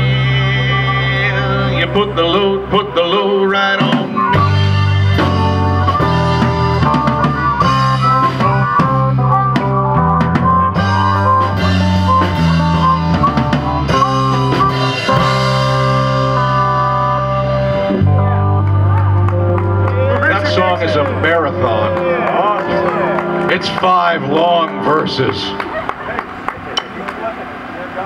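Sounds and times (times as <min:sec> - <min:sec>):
harmonica bending notes: 0:00.0 - 0:26.5
bass guitar: 0:00.0 - 0:28.0
electric guitar: 0:00.0 - 0:28.0
drum kit beat: 0:03.8 - 0:20.0.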